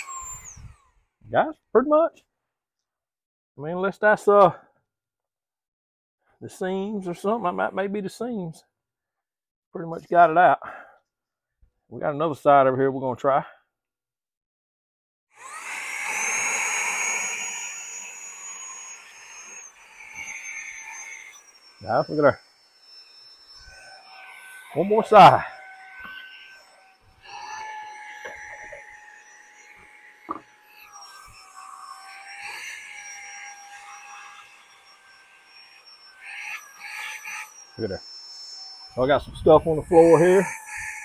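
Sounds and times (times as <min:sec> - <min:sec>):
handheld vacuum motor whine: 0:00.0 - 0:01.0, 0:15.4 - 0:41.0.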